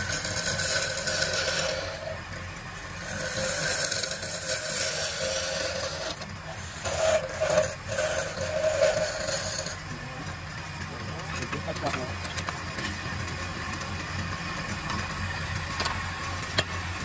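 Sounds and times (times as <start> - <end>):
chisel scraping spinning wood: 0.0 - 17.0
wood lathe humming: 0.0 - 17.0.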